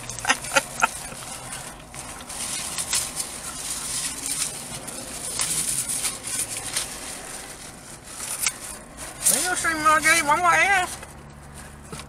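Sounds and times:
thin plastic crinkling and tearing: 0.0s - 11.9s.

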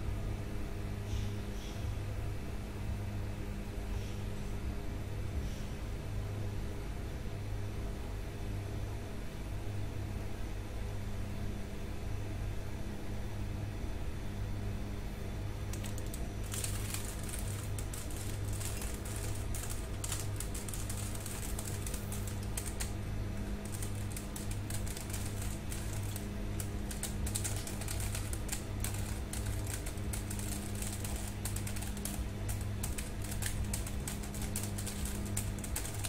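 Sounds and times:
keyboard typing: 15.7s - 36.0s.

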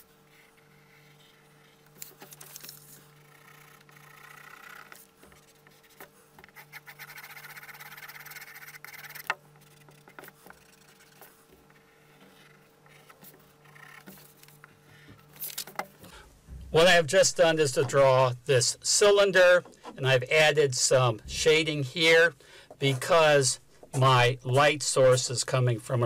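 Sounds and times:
pencil shading on paper: 3.2s - 14.1s.

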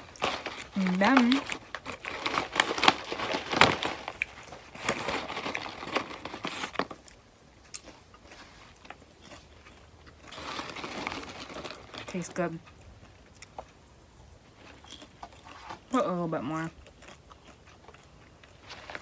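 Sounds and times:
paper bag crinkling: 0.0s - 7.1s, 10.2s - 12.6s, 18.5s - 19.0s
crunching of popcorn being eaten: 0.0s - 19.0s
popcorn rustling: 0.0s - 19.0s.

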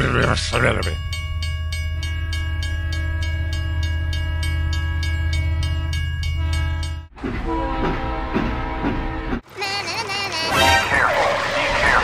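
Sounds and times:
deep train rumble: 0.0s - 9.6s
train horn: 2.8s - 9.4s.

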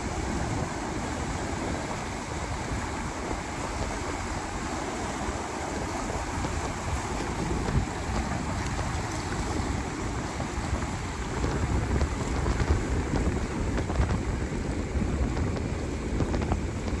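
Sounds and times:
waves washing around boulders: 0.0s - 17.0s
wind rumbling on microphone: 0.0s - 17.0s.

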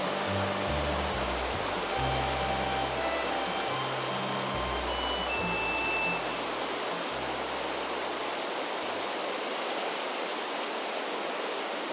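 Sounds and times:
background music: 0.0s - 7.8s
fast river rushing: 0.0s - 11.9s.

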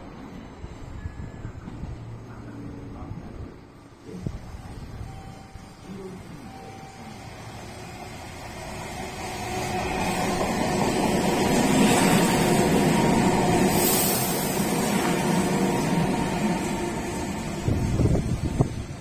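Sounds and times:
passing train hiss: 0.0s - 19.0s
train wheels rumbling on rails: 6.7s - 19.0s.

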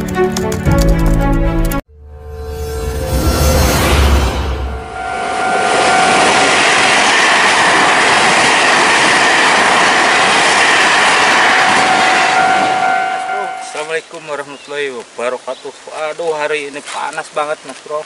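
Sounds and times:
train passing with rumbling wheels: 3.2s - 14.1s
two-note crossing warning tone: 4.3s - 6.5s, 11.8s - 13.9s.

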